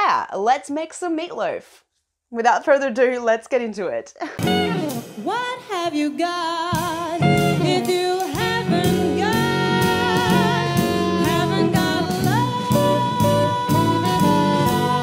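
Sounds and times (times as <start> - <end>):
bass line: 4.4 - 5.3, 6.8 - 15.0
steady beat: 4.4 - 5.3
sliding melody over beat: 4.4 - 5.7, 6.8 - 15.0.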